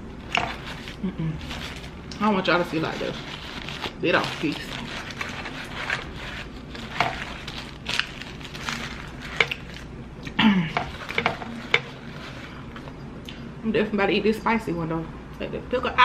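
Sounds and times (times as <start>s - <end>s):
paper wrapper crinkling: 0.2s - 9.9s, 10.9s - 13.0s.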